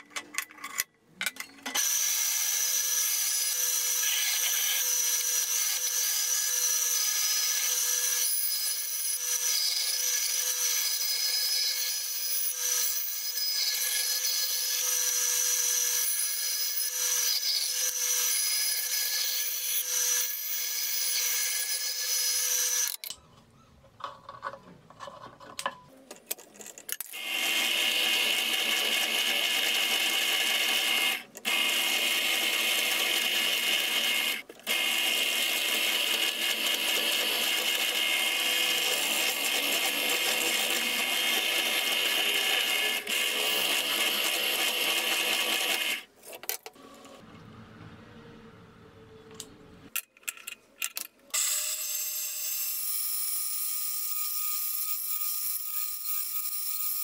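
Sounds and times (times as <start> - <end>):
band saw cutting: 1.8 - 23.2, 27.0 - 46.1.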